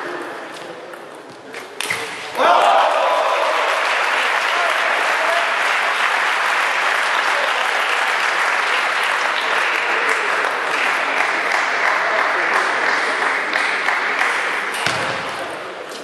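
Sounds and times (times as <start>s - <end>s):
spectators clapping: 2.4s - 14.7s.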